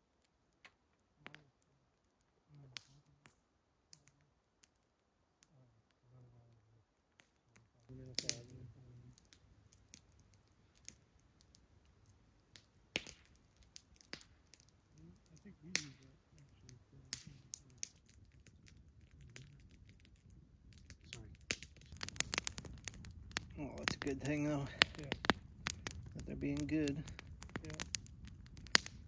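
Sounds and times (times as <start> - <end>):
campfire crackling and popping: 0.0 - 29.0
faint low voices: 7.8 - 9.2, 15.0 - 18.0.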